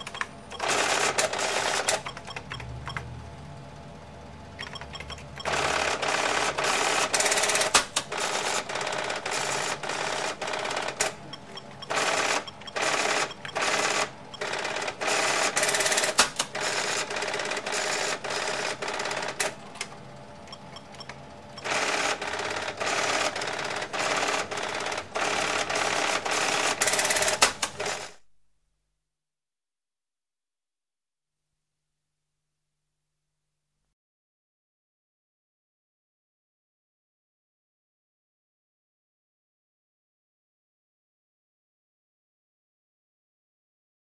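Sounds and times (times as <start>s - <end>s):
receipt printer chattering: 0.0s - 3.2s, 4.6s - 28.2s.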